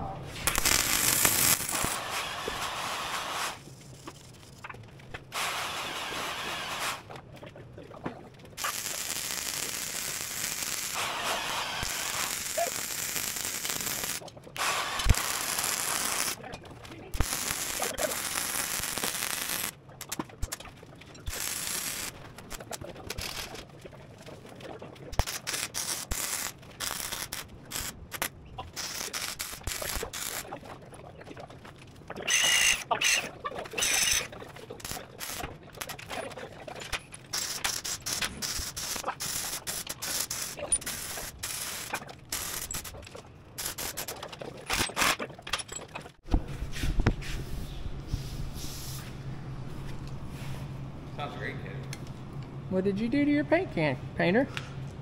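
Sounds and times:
welding arc crackling: 0:00.3 - 0:07.2, 0:08.5 - 0:24.0, 0:25.0 - 0:31.3, 0:32.0 - 0:45.2.

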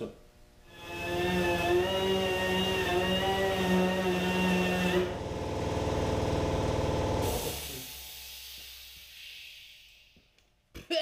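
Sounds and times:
pneumatic grinder on sheet metal: 0:00.7 - 0:07.9.

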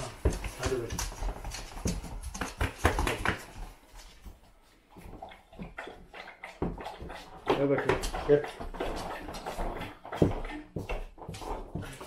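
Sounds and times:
dog claws clicking on floor: 0:00.0 - 0:04.4
dog lapping water from bowl: 0:04.9 - 0:12.0.

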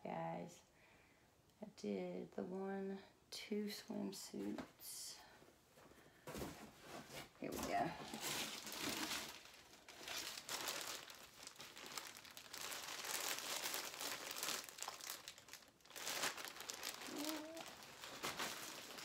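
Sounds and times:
packaging crinkling and rustling: 0:06.4 - 0:19.0.

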